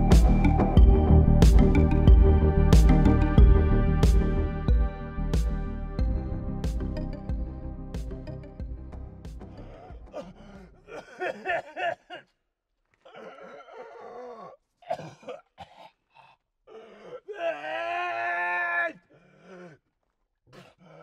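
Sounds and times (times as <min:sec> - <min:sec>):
background music: 0:00.0 - 0:11.6
person groaning and moaning: 0:09.6 - 0:11.7, 0:13.0 - 0:15.4, 0:16.2 - 0:19.8, 0:20.5 - 0:21.0.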